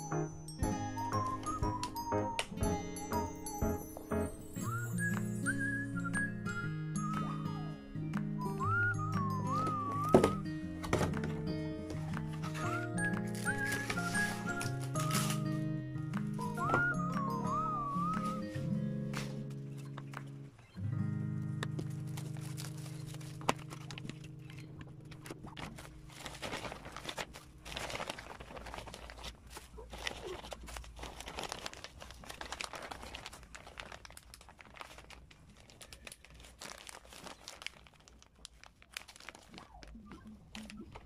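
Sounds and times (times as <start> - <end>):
held music chord: 0.0 - 5.5
plastic bag crinkling: 8.6 - 15.7, 21.6 - 41.0.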